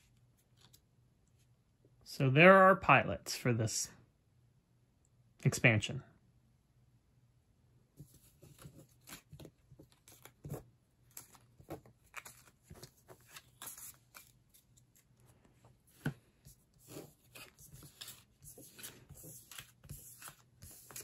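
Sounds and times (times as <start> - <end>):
game cards rustling and tapping: 8.0 - 21.0.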